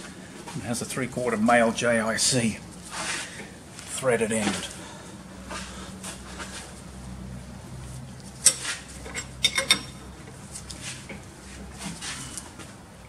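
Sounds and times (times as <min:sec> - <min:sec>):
spanner clinking on metal fitting: 0:08.4 - 0:10.2.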